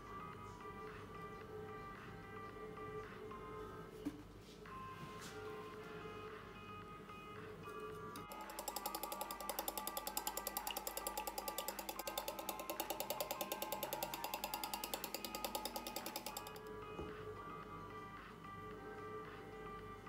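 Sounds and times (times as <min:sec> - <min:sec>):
background music: 0:00.0 - 0:20.0
whisk clicking against bowl: 0:08.2 - 0:16.6.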